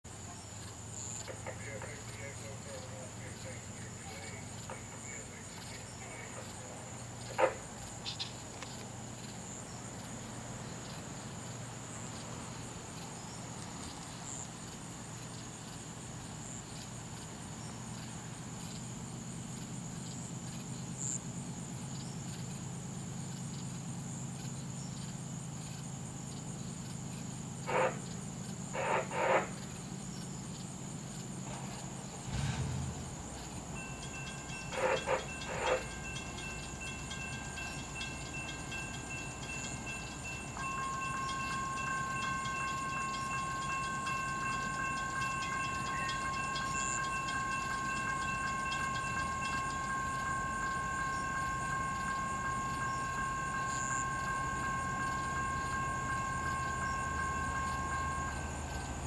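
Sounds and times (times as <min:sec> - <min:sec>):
night insects trilling: 0:00.0 - 0:59.0
diesel freight train rumble: 0:00.1 - 0:24.8, 0:27.4 - 0:59.0
grade-crossing bells ringing: 0:00.8 - 0:21.7, 0:28.6 - 0:59.0.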